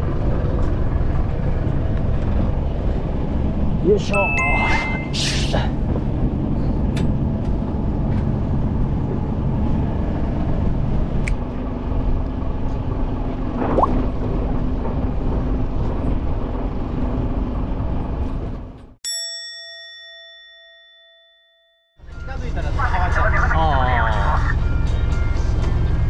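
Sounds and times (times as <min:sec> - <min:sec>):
boat engine rumble: 0:00.0 - 0:19.0, 0:22.0 - 0:26.0
bell-like ding: 0:04.2 - 0:05.2, 0:19.1 - 0:22.0.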